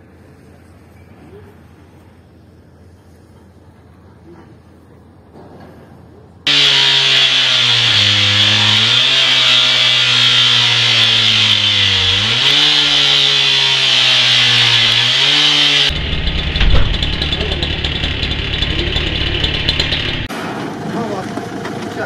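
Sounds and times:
cut-off saw grinding steel: 6.5s - 20.3s
engine rough clatter: 6.5s - 22.0s
loud bang: 15.8s - 20.6s.

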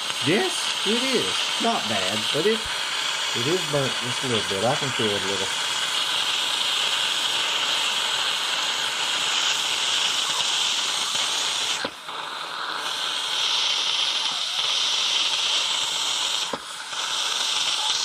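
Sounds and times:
steam hissing from pressure valve: 0.0s - 18.0s.

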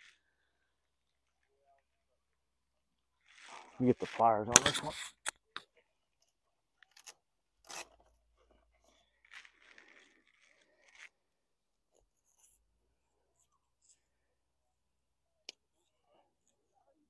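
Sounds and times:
hands rustling and scraping: 7.7s - 11.2s.

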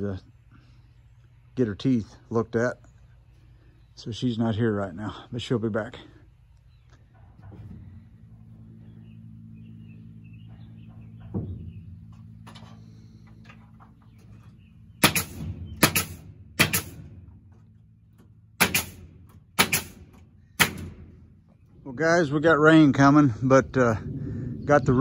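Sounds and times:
low steady hum: 0.0s - 25.0s
hammer striking wood: 15.0s - 17.0s, 18.6s - 19.0s, 19.6s - 20.0s, 20.6s - 20.9s.

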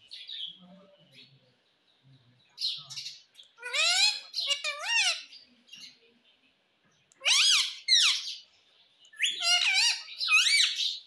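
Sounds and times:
parakeet shrill calls: 3.6s - 5.3s, 7.2s - 8.4s, 9.2s - 11.0s.

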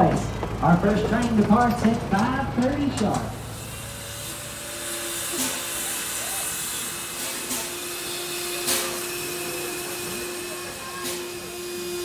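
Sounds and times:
steam bursts: 3.0s - 12.0s
steam hissing from locomotive: 3.3s - 12.0s.

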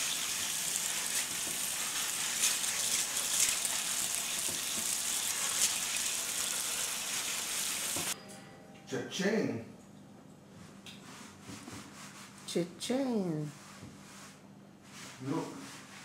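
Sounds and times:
faucet water running into sink: 0.0s - 8.2s.

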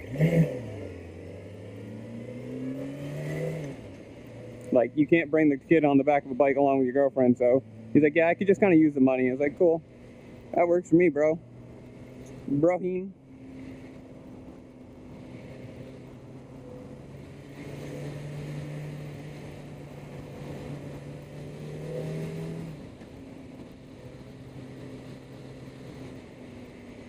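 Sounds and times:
wind rush of riding: 13.2s - 27.0s.

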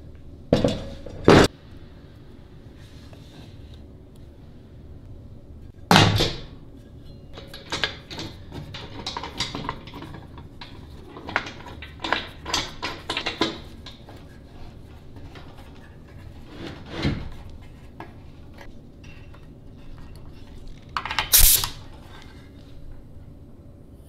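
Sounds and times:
metal clamps clicking and rattling: 7.3s - 14.0s.

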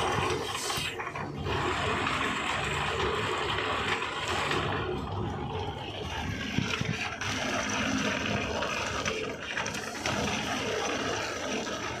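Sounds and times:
wire stripping machine humming: 0.0s - 12.0s.

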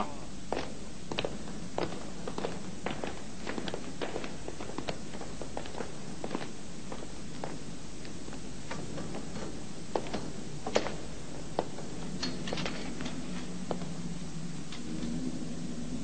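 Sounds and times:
steady background hiss: 0.0s - 16.0s
footsteps tapping and scuffing: 0.5s - 14.0s.

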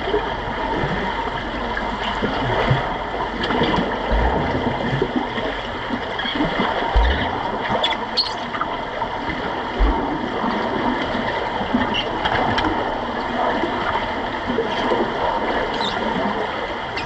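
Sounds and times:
bubbling: 0.0s - 17.0s
underwater water rush: 0.0s - 17.0s
low thump: 4.1s - 4.8s, 7.0s - 7.5s, 9.8s - 10.2s.

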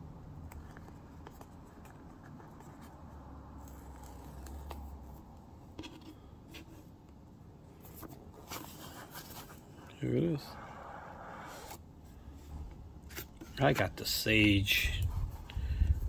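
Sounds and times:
hands handling cardboard box: 7.8s - 10.4s.

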